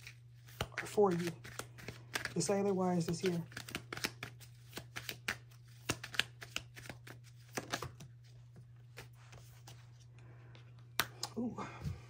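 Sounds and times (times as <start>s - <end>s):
cards shuffling and snapping: 0.0s - 9.8s, 10.7s - 11.4s.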